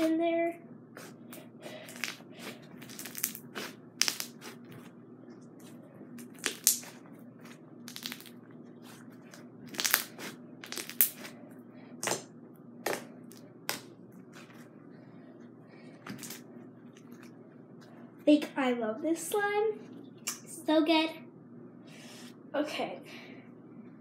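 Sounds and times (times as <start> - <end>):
crunchy slime crackling: 1.0 - 4.9, 5.6 - 11.4.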